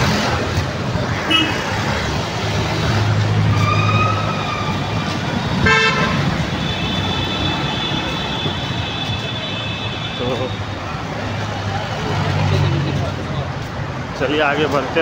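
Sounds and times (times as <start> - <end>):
motor vehicle engines running: 0.0 - 15.0
car horn toot: 1.3 - 1.8, 5.6 - 10.4.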